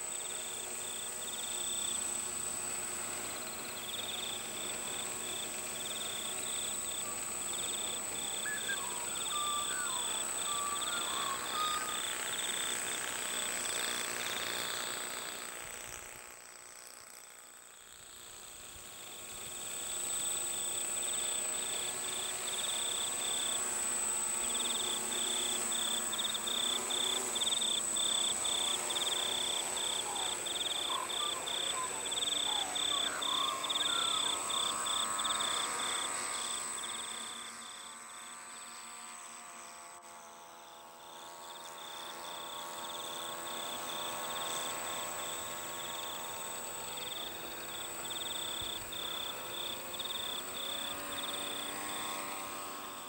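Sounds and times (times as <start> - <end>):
drone propellers whirring: 0.2 - 39.0.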